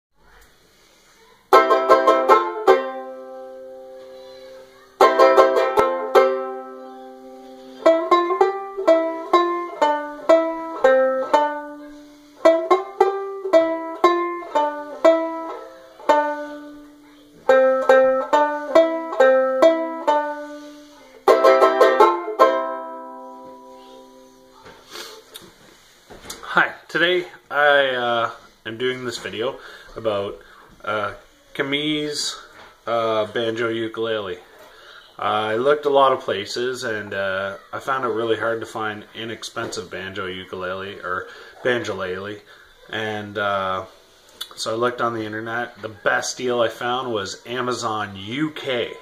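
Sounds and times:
banjo ukulele strummed chords: 1.5 - 24.7
banjo ukulele picked notes: 1.5 - 25.1.

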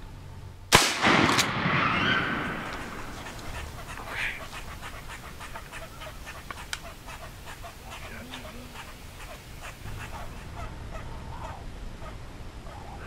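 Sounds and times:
shotgun blast with echo: 0.7 - 3.1
sharp crack: 0.7 - 4.0.

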